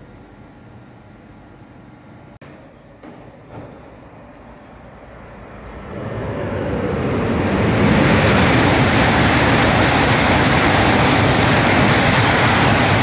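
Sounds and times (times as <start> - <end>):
high-speed train passing: 3.2 - 13.0.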